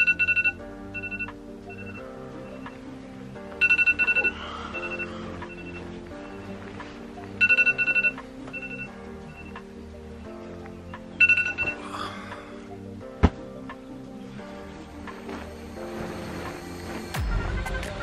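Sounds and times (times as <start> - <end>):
phone alarm high beeps: 0.0 - 2.0, 3.6 - 5.8, 7.4 - 9.6, 11.2 - 11.8
soft background music: 0.0 - 18.0.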